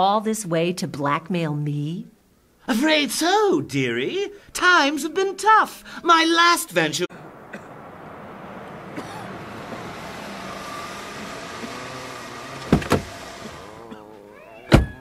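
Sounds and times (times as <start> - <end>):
road noise hiss: 5.7 - 14.4
jeep engine running: 7.1 - 15.0.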